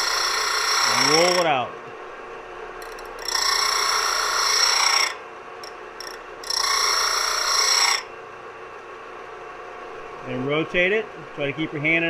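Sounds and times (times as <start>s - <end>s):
drill bit grinding on disc sander: 0.0s - 1.6s, 2.8s - 8.1s
disc sander running: 0.0s - 12.0s.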